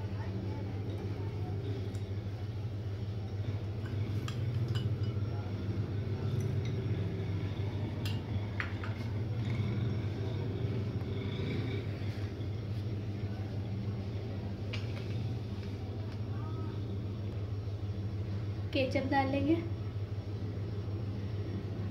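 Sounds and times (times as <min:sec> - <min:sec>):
steady low hum: 0:00.0 - 0:21.9
spoon clinking against glass: 0:03.8 - 0:05.4, 0:06.3 - 0:07.1.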